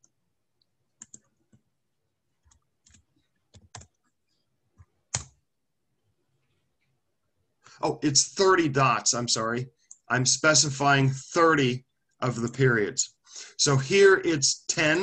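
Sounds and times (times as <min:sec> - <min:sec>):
computer keyboard keystrokes: 0:01.0 - 0:01.3, 0:02.4 - 0:04.0, 0:04.8 - 0:05.4.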